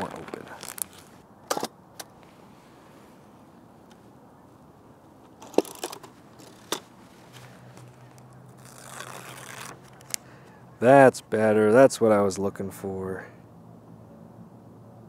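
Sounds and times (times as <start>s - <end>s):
soft rustle: 0.0s - 1.2s, 2.2s - 4.2s, 5.1s - 10.5s.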